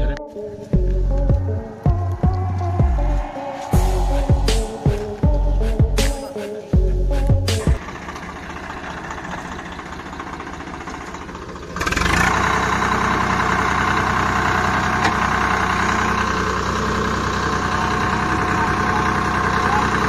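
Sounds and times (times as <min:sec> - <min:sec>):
tractor diesel engine: 0:00.0 - 0:20.0.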